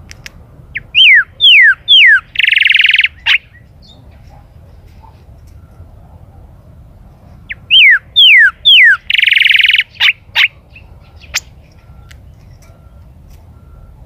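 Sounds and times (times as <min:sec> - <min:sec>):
buzzy bird trill: 0:00.7 - 0:04.2, 0:07.5 - 0:11.6.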